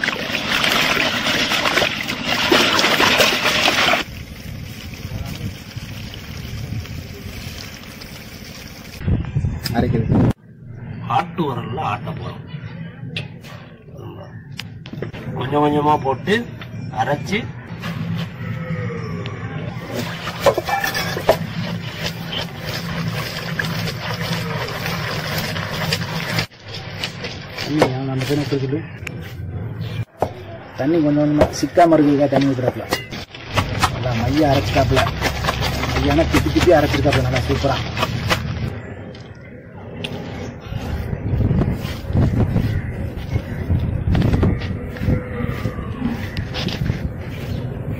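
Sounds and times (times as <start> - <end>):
coconut being scraped: 19.8 - 28.7, 33.0 - 38.7
water sloshing in iron pan: 19.9 - 27.7.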